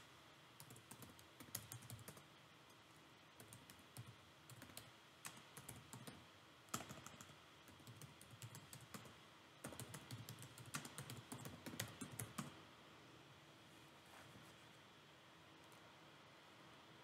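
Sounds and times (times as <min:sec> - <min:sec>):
typing on computer keyboard: 0:00.6 - 0:02.3, 0:03.4 - 0:12.6.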